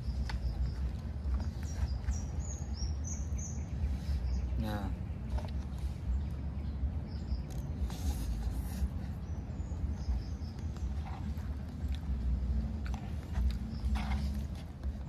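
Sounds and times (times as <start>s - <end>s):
steady low rumble: 0.0s - 15.0s
chewing and slurping noodles: 7.4s - 15.0s.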